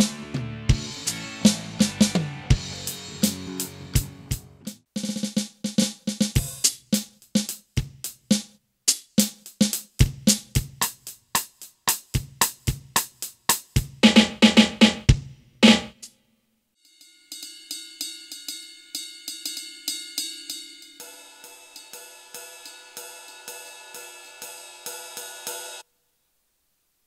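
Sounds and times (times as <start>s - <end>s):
electronic drum pattern: 10.0s - 16.0s
electronic cymbal hits: 17.0s - 25.8s.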